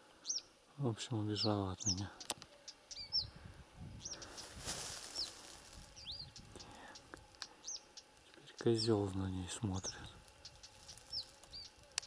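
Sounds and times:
songbird chirping: 0.1s - 12.0s
handling rustle: 4.2s - 6.1s.

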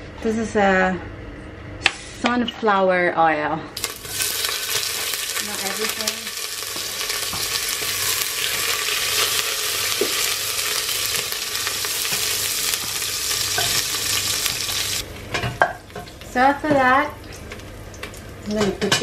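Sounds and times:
onion sizzling in oil: 3.8s - 18.6s.

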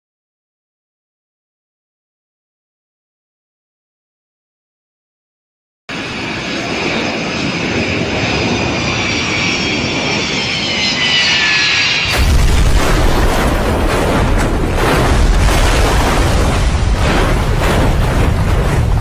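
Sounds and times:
jet engines whining: 5.9s - 19.0s
heavy rumbling crash: 11.7s - 19.0s.

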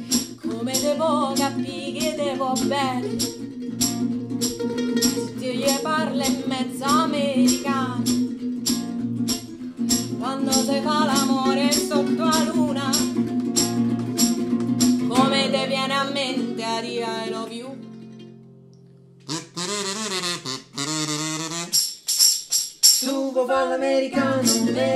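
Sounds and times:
mandolin: 0.0s - 19.3s, 23.5s - 24.9s
strummed acoustic guitar: 0.0s - 19.3s, 24.1s - 24.9s
woman singing: 0.1s - 3.3s, 5.0s - 8.2s, 10.1s - 13.2s, 15.0s - 17.8s, 23.0s - 24.9s
harmonica: 19.2s - 22.1s.

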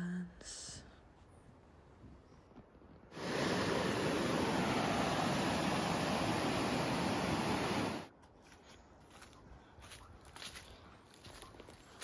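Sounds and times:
forest background: 0.0s - 12.0s
loud steady rushing noise: 3.2s - 8.1s.

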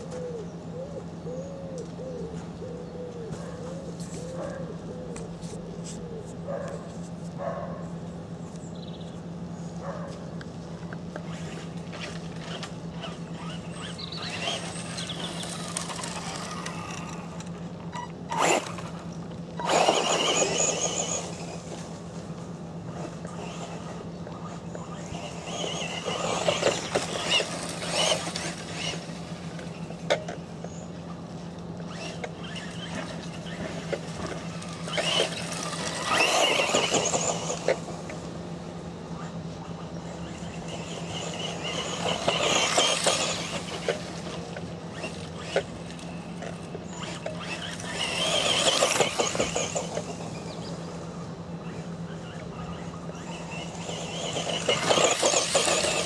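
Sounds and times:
steady low hum: 0.0s - 56.0s
electric motor whine: 10.8s - 56.0s
tyres crunching on grit: 31.9s - 37.9s, 53.2s - 56.0s.

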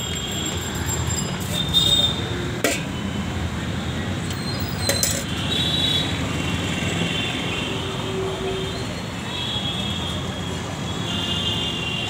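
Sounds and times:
roadside traffic rumble: 0.0s - 12.0s.

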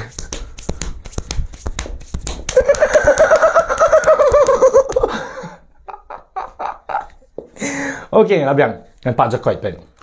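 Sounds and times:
man laughing: 2.5s - 7.4s.

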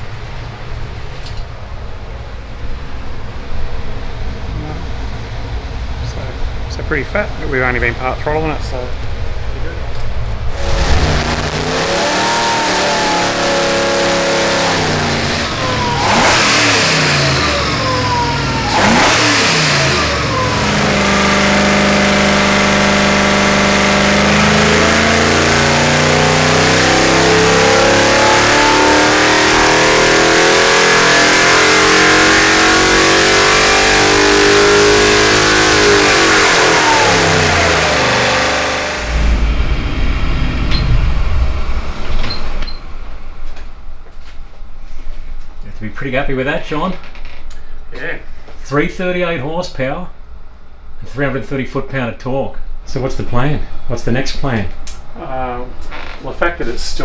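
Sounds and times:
engine revving: 10.4s - 43.3s.

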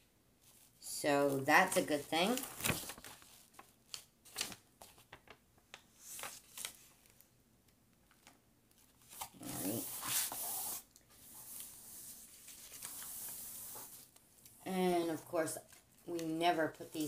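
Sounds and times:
plastic film rustling and crinkling: 1.3s - 7.2s.

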